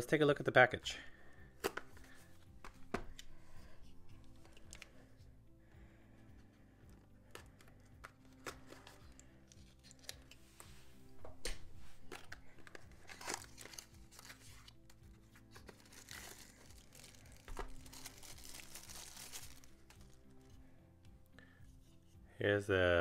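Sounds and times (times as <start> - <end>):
soft background music: 0.0 - 23.0
plastic bag crinkling: 12.1 - 14.4, 15.6 - 20.2
cardboard package tearing: 12.6 - 14.9, 15.5 - 20.2.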